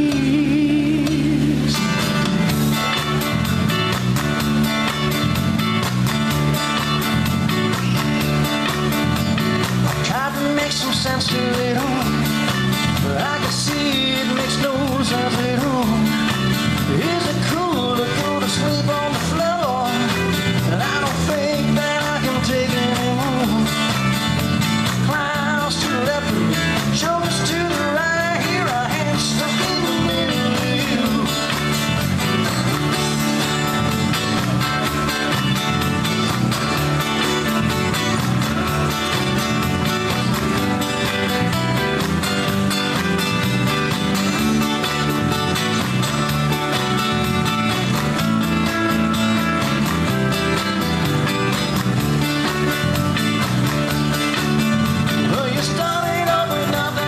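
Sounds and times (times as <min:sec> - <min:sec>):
man singing rock song: 0:00.0 - 0:02.9, 0:09.8 - 0:36.0, 0:54.0 - 0:57.0
backing track with harmony vocals: 0:00.0 - 0:06.0, 0:08.4 - 0:57.0
guitar: 0:00.0 - 0:57.0.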